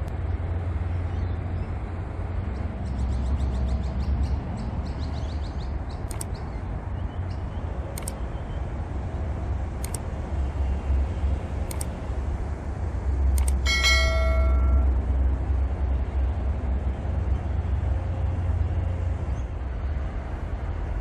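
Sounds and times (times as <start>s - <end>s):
steady low rumble: 0.0s - 21.0s
small bell ringing: 13.5s - 15.0s.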